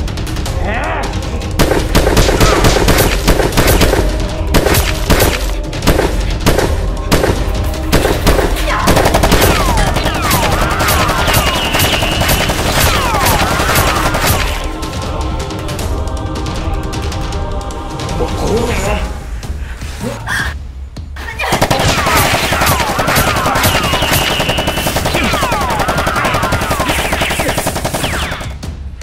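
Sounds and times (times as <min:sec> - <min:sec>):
action music: 0:00.0 - 0:29.0
automatic gunfire effects: 0:01.6 - 0:14.7, 0:21.4 - 0:28.6.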